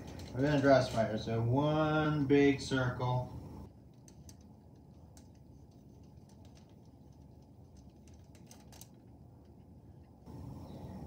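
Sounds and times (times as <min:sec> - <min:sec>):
low room hum: 0:00.0 - 0:11.0
marker clicking on crumpled foil: 0:03.9 - 0:09.1.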